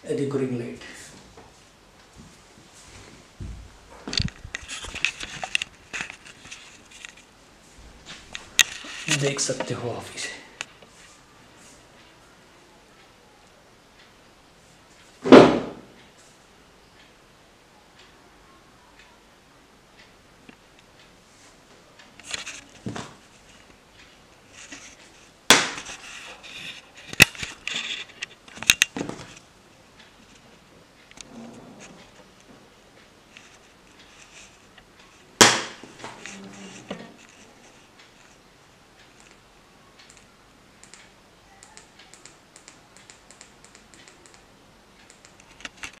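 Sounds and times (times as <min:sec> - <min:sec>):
cable handling rustles: 0:02.0 - 0:07.3
sharp clicks: 0:40.0 - 0:46.0.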